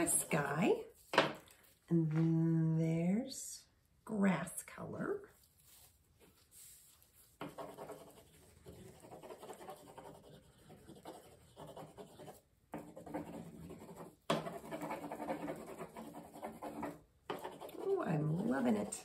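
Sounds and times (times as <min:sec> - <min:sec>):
crayon scribbling on paper: 0:07.4 - 0:19.0.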